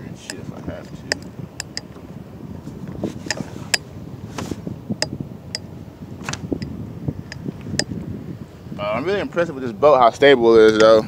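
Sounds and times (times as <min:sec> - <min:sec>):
low rumbling water wash: 0:00.0 - 0:11.0
kayak gear knocking and clicking: 0:00.2 - 0:02.0, 0:06.2 - 0:07.9.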